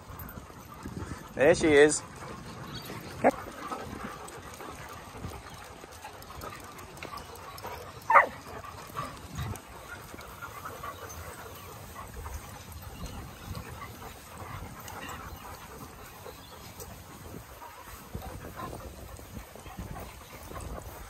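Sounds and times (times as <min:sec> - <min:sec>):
faint dogs in background: 0:00.0 - 0:21.0
dog barking: 0:08.1 - 0:08.4.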